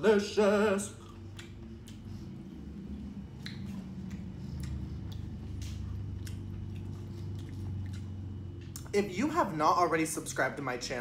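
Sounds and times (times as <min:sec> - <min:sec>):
low steady hum: 0:00.0 - 0:11.0
wet chewing and mouth smacks: 0:01.0 - 0:02.4, 0:03.2 - 0:09.0.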